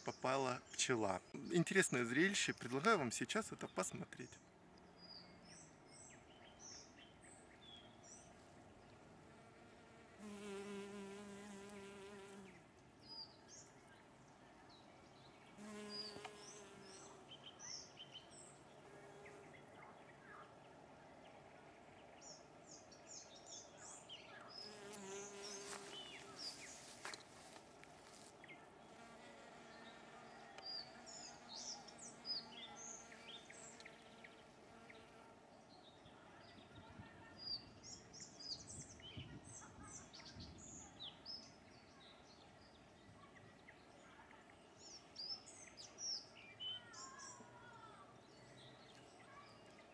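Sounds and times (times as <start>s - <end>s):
bee buzzing in flight: 9.2s - 12.6s, 15.6s - 17.2s, 24.7s - 26.8s
small birds chirping: 10.2s - 49.9s.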